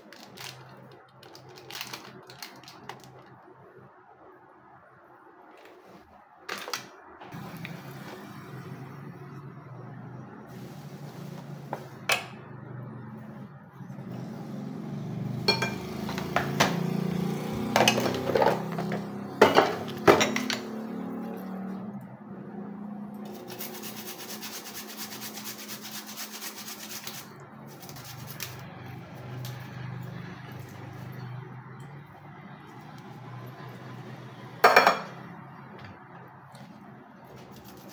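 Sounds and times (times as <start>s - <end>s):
spoon clinking on cups and bowl: 15.5s - 16.5s, 17.8s - 20.8s.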